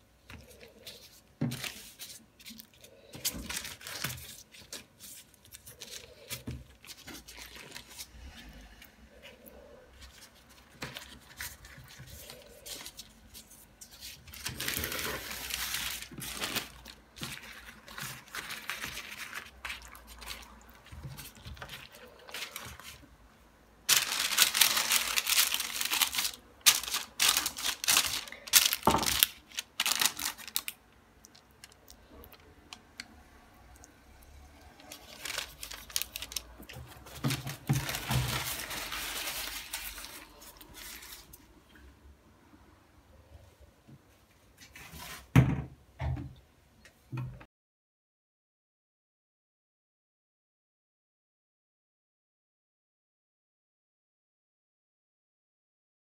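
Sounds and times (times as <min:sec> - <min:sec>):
baking paper rustling: 0:00.2 - 0:09.4, 0:10.0 - 0:23.1, 0:23.8 - 0:32.5, 0:34.8 - 0:41.6.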